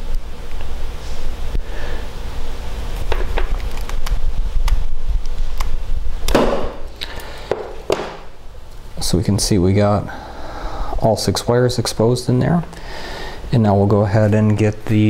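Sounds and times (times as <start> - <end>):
handling noise: 6.3 - 8.4.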